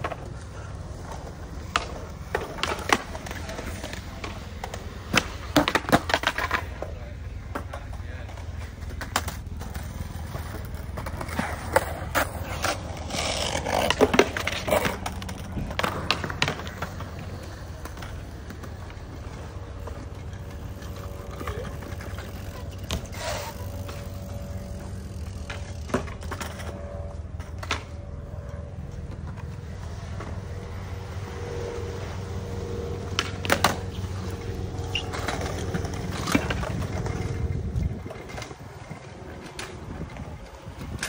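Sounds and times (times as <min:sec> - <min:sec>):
skateboard wheels rolling on concrete: 0:00.0 - 0:41.0
skateboards clacking on ground: 0:00.0 - 0:41.0.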